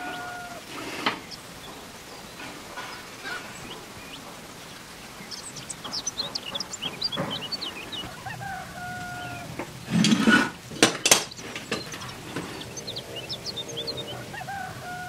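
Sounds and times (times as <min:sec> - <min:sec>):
birds chirping: 0:00.0 - 0:15.0
loud rustling: 0:00.0 - 0:15.0
sharp knocks: 0:05.2 - 0:08.2.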